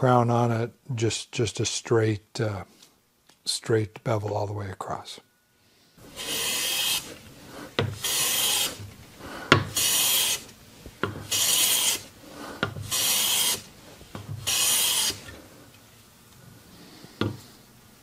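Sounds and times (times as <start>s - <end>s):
hand plane strokes hissing: 6.0s - 15.6s.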